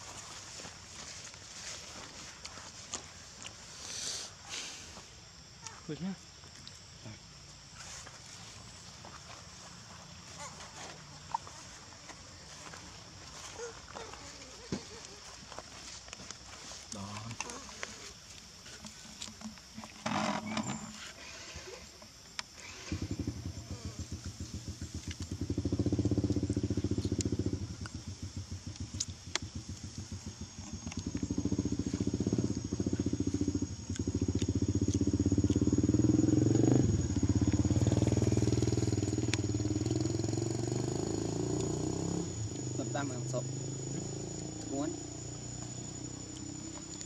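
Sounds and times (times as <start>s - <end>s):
small engine running: 22.5s - 47.0s.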